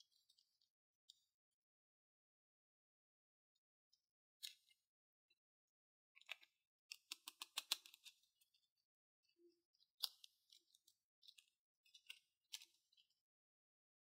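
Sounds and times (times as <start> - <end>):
toy pieces clicking: 6.2 - 8.1.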